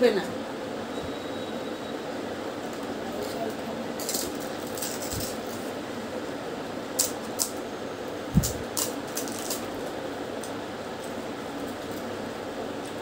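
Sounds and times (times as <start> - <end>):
crisp shells crunching: 8.4 - 9.9.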